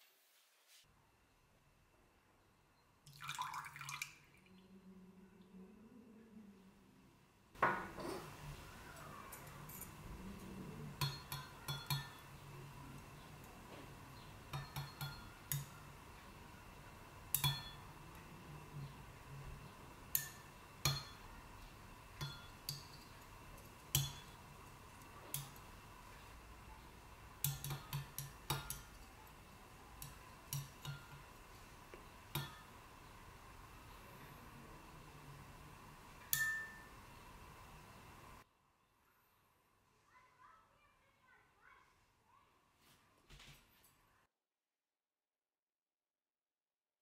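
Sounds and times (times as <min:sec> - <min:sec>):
utensil clinking against glass: 0:36.3 - 0:36.9.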